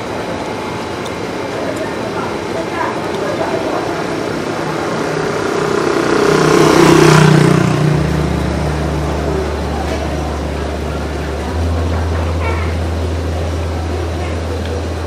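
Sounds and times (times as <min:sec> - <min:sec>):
steady low hum: 0:00.0 - 0:15.0
vehicle passing by: 0:03.2 - 0:14.1.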